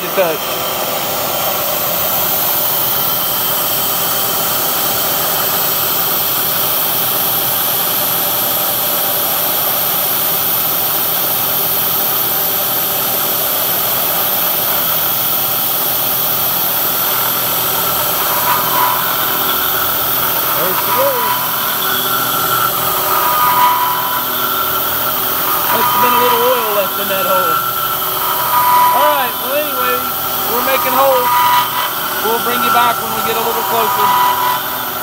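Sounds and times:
milling machine cutting steel: 13.2s - 35.0s
steady whine and hiss: 16.0s - 35.0s.

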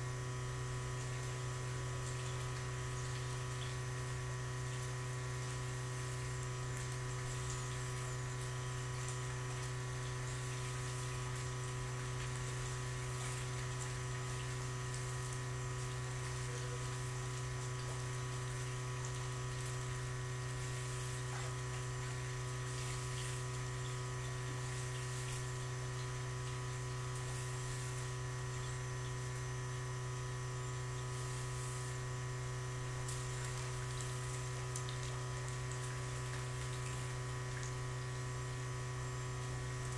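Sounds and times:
electric motor hum: 0.0s - 39.9s
hiss of moving water: 9.0s - 29.4s, 30.8s - 32.1s.

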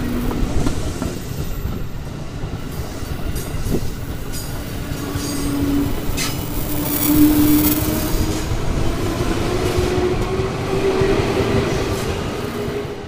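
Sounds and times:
train wheels rumbling on rail: 0.0s - 13.0s
train motor whine: 4.9s - 8.8s.

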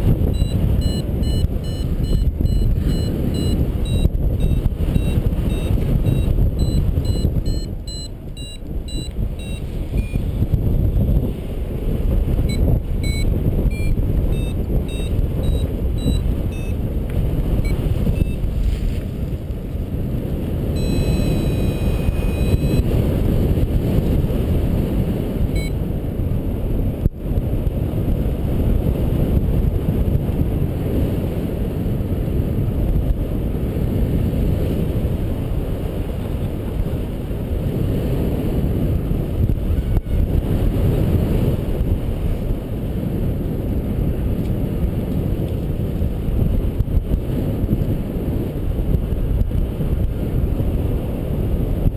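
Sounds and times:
wind buffeting microphone: 0.0s - 51.9s
variometer beeps: 0.2s - 10.4s, 12.4s - 16.8s, 17.6s - 18.5s, 20.8s - 22.9s, 25.5s - 25.8s.

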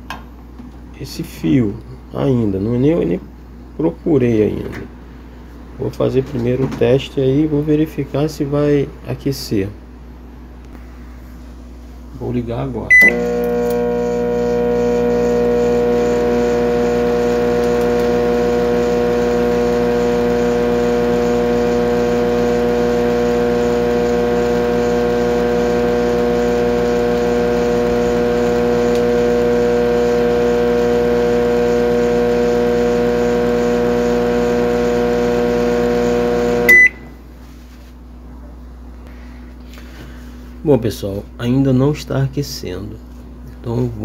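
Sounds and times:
microwave beep: 12.9s - 18.0s, 27.4s - 37.2s
microwave oven humming: 12.9s - 37.3s.

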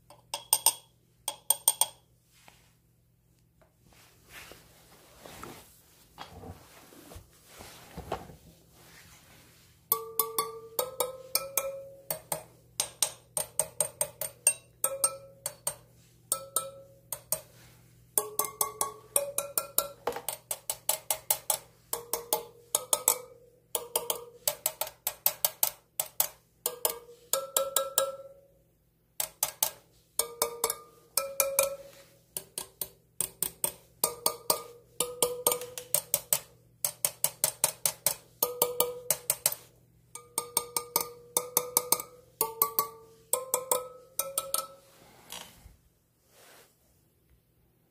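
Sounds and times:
metal rod pinging wheel spokes: 0.0s - 2.1s, 9.9s - 28.6s, 29.2s - 45.0s.

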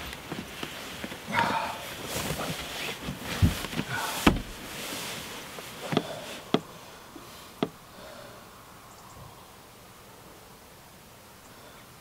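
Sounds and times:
fabric hammock rustling: 0.0s - 7.9s
knocks and thumps: 3.1s - 4.6s.

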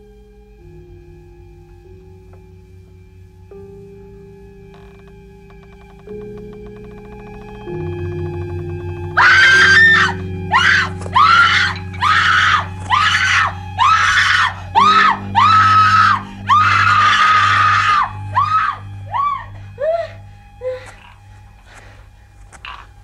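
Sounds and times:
low droning music chord: 0.0s - 23.0s
woman screaming in terror: 9.2s - 21.0s.

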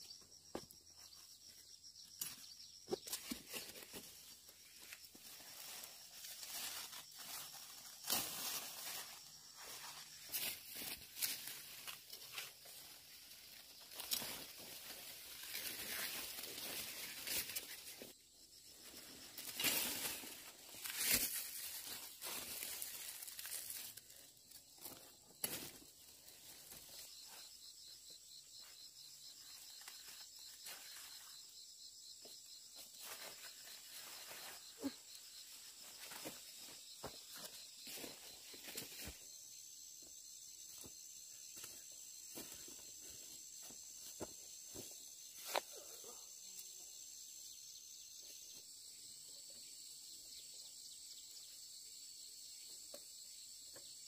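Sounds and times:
leaves rustling and crinkling: 2.2s - 27.5s, 29.3s - 31.5s, 32.7s - 39.4s.

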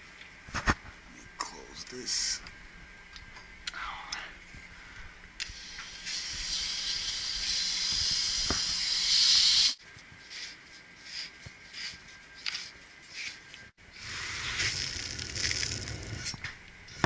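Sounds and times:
pressure hissing from valve: 5.4s - 9.8s.

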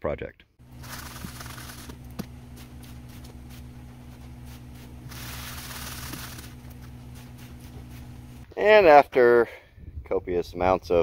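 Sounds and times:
steady low hum: 0.6s - 8.5s
sand sifting through mesh: 0.7s - 8.4s.

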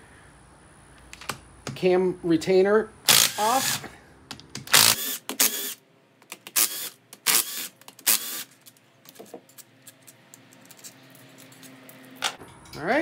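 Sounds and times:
cordless drill running: 3.1s - 3.8s, 4.7s - 5.8s, 6.6s - 8.5s.

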